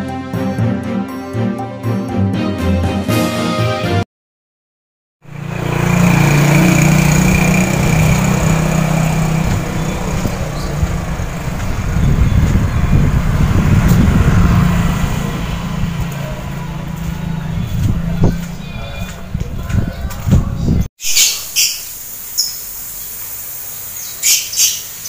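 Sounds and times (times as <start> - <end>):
outdoor street noise: 5.2 - 25.0
vehicle engine running: 5.3 - 20.8.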